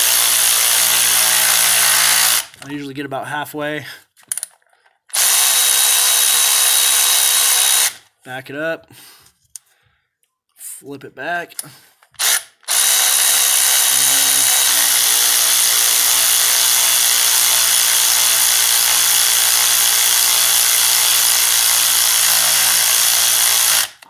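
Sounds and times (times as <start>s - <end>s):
electric ratchet motor running: 0.0s - 2.6s, 5.1s - 8.0s, 12.2s - 24.0s.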